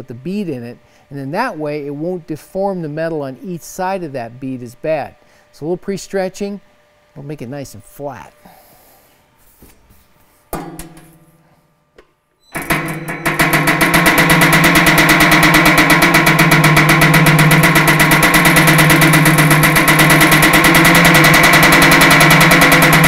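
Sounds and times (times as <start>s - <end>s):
metal sheet ringing: 10.6s - 11.5s, 12.5s - 23.0s
power hammer pounding metal: 12.6s - 23.0s
steel sheet rattling: 12.6s - 23.0s.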